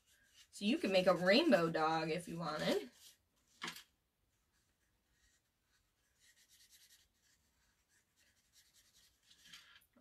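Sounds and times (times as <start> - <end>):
marker scribbling on paper: 0.0 - 3.2, 4.3 - 9.5.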